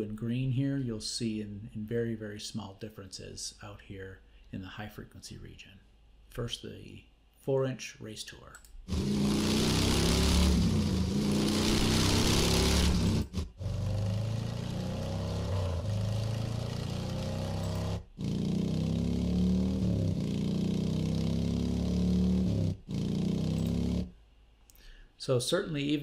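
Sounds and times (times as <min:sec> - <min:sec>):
motorcycle engine running: 0:08.9 - 0:24.1.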